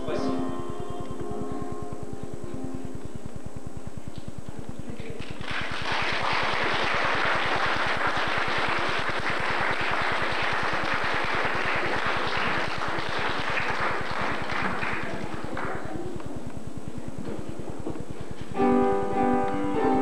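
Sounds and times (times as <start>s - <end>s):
audience applauding: 5.2s - 16.2s.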